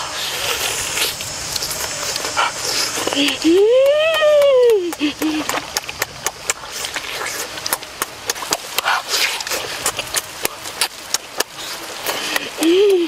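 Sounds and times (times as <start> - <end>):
mouth sucking noise: 0.0 - 3.6, 5.0 - 13.0
wet mouth clicks and lip smacks: 4.7 - 13.0.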